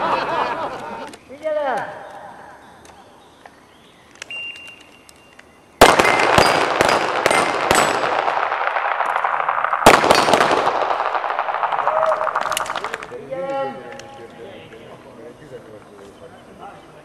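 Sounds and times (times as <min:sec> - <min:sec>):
electronic beep: 0:04.3 - 0:05.3
pistol shots: 0:05.8 - 0:13.1.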